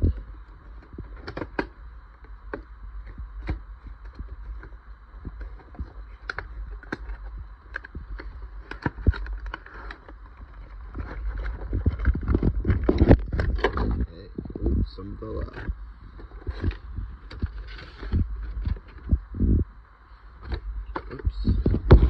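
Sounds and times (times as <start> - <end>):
steady low hum: 0.0 - 22.0
packaging taps and scrapes: 2.5 - 14.1.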